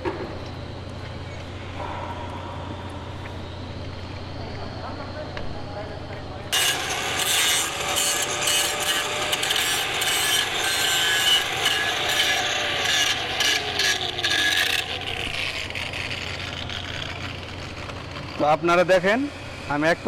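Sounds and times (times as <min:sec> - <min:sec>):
angle grinder scraping metal: 0:06.5 - 0:18.5.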